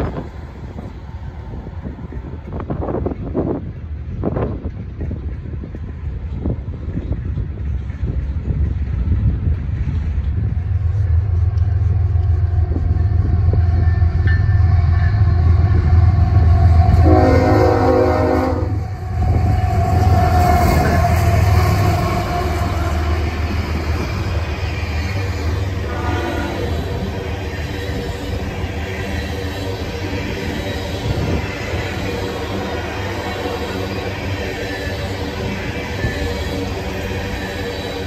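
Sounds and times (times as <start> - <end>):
diesel locomotive engine rumble: 0.0 - 38.0
train air horn: 16.2 - 23.1, 25.7 - 27.0.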